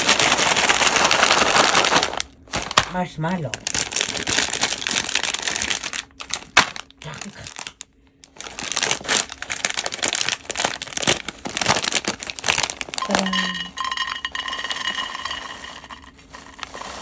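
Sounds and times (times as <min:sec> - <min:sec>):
plastic packaging crinkling: 0:00.0 - 0:17.0
marshmallows pouring into bowl: 0:08.4 - 0:17.0.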